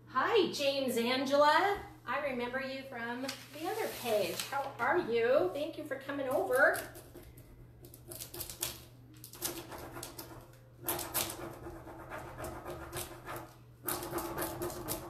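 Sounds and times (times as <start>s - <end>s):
hands rubbing plastic sheet: 3.3s - 4.9s.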